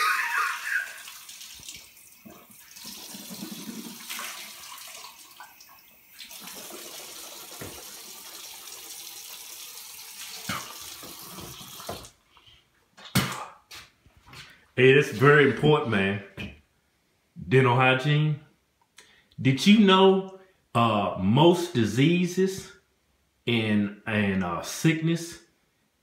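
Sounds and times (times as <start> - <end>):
faucet running water: 0.0 - 12.2.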